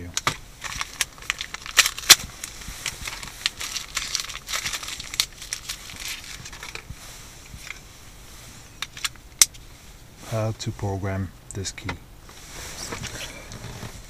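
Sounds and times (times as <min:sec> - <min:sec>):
packaging crinkling and tearing: 0:00.2 - 0:06.8.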